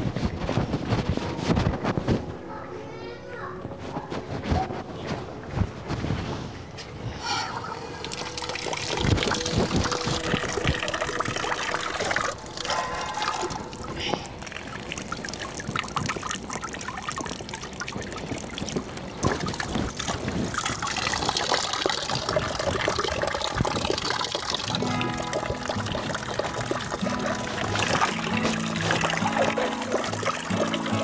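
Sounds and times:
thin stream of falling water: 7.7s - 31.0s
water splashing in a tub: 7.8s - 31.0s.

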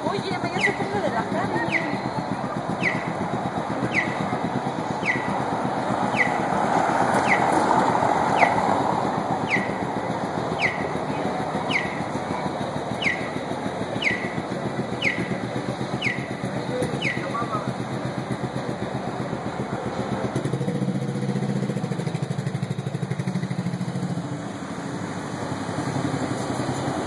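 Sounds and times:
outdoor background noise: 0.0s - 27.0s
falling chirp: 3.8s - 4.2s.

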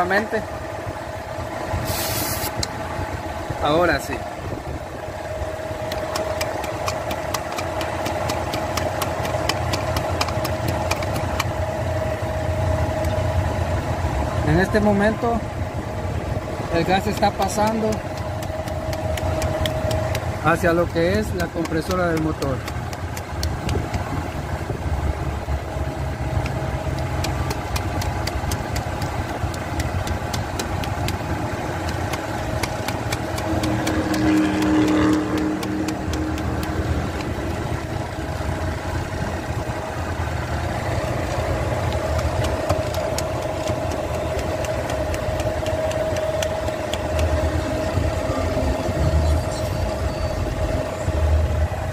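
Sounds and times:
car engine idling: 0.0s - 51.9s
constant whine: 0.0s - 51.9s
sharp even ticking: 16.7s - 24.1s, 26.2s - 37.6s, 40.7s - 48.0s.

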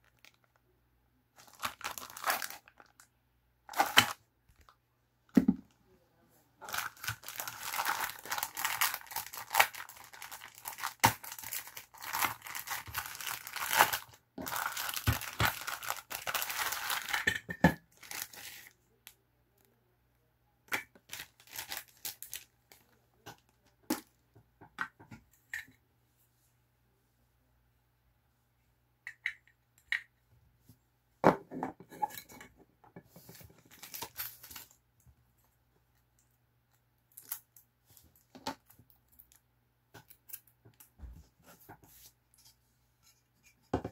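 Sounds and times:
plastic bag crinkling: 0.0s - 0.6s, 1.4s - 3.1s, 6.6s - 17.2s, 18.0s - 18.7s, 21.1s - 22.9s.

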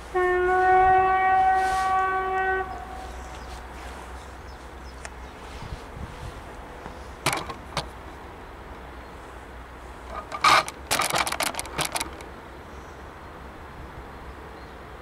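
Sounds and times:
low wind rumble: 0.0s - 15.0s
sharp clicks and rustles: 6.8s - 8.0s, 10.0s - 12.3s.

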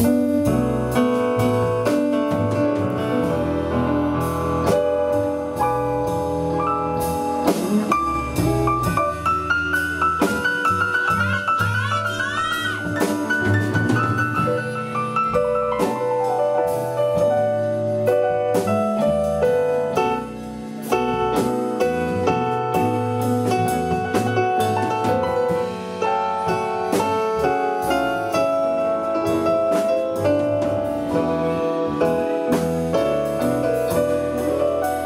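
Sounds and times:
drums: 0.0s - 35.0s
piano: 0.0s - 35.0s.

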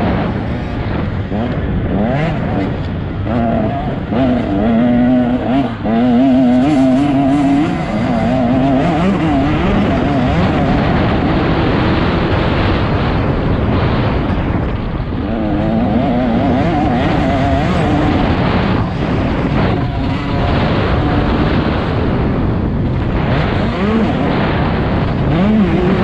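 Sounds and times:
dirt bike engine revving: 0.0s - 26.0s.

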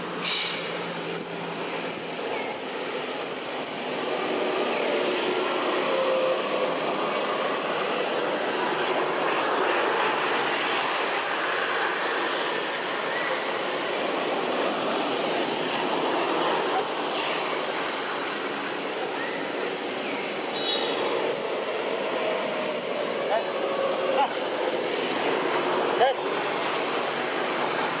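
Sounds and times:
steady rushing outdoor noise: 0.0s - 28.0s
faint thin whistle-like tones: 20.5s - 21.0s.

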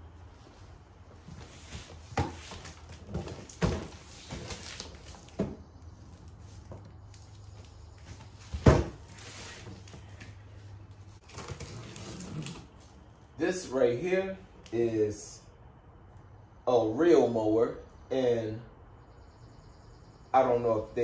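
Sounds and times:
cardboard box knocks and scuffs: 8.2s - 9.2s
heavy box thump on floor: 8.5s - 9.0s.

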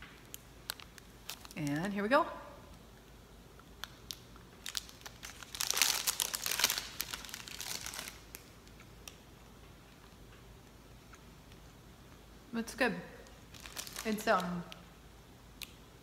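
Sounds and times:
wrapper crinkling: 0.2s - 1.9s, 3.8s - 8.8s, 13.3s - 14.8s.

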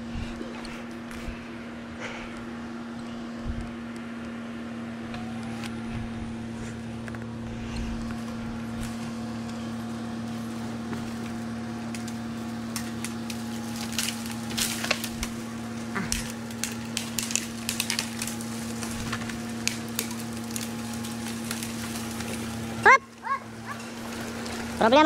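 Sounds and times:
low machine hum: 0.0s - 25.0s
wood crackling and snapping: 5.0s - 25.0s.

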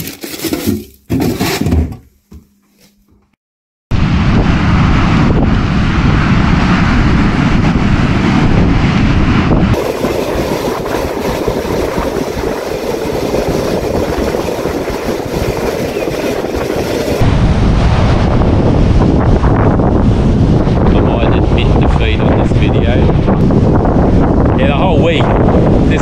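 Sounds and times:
wind buffeting microphone: 3.9s - 26.0s
beach surf: 9.2s - 18.2s.

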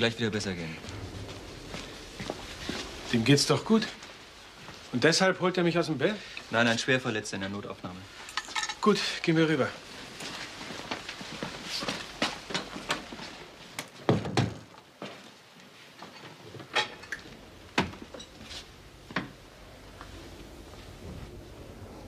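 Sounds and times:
hurried footsteps: 0.5s - 5.0s.

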